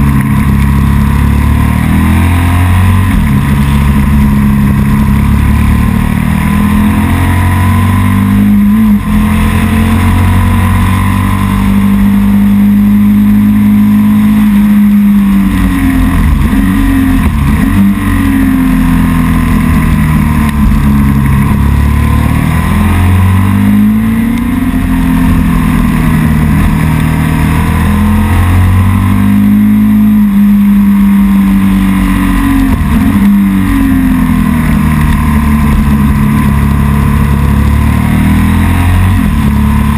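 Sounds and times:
engine revving during burnout: 1.1s - 4.3s, 5.2s - 39.9s.

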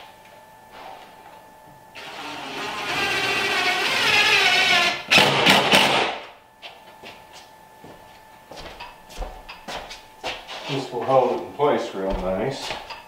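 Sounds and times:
drill motor whine: 2.0s - 5.4s.

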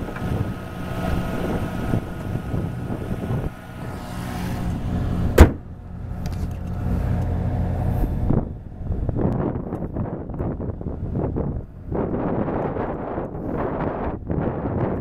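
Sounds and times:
rotary engine idling: 0.0s - 13.7s
bonnet slamming shut: 5.3s - 5.6s.

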